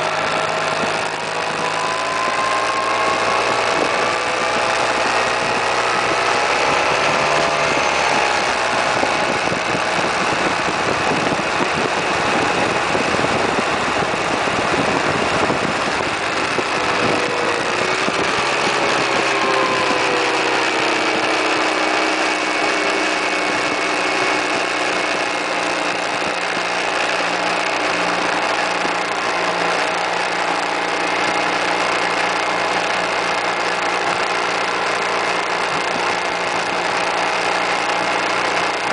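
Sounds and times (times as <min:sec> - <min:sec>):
wind rushing over microphone: 0:00.0 - 0:34.3
scooter engine running: 0:00.0 - 0:38.9.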